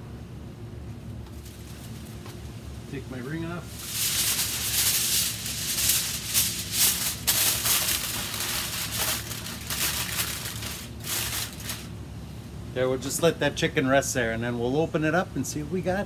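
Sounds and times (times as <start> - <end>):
aluminium foil crinkling: 1.2 - 2.5, 3.6 - 12.0.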